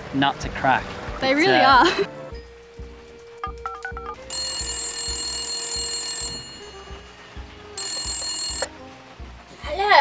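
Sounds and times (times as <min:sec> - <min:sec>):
background music with steady beat: 0:00.0 - 0:10.0
telephone ringing: 0:03.7 - 0:08.8.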